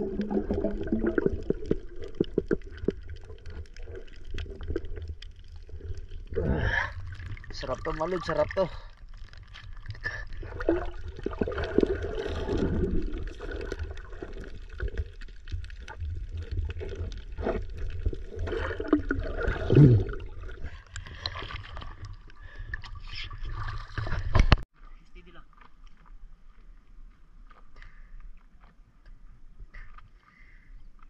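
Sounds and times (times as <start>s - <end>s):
sea water sloshing and gurgling: 0.0s - 24.7s.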